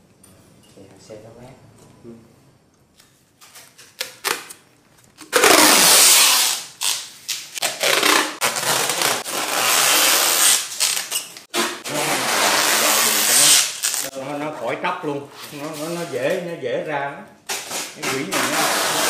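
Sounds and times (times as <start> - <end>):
packing tape ripping: 3.4 - 14.1, 17.5 - 19.0.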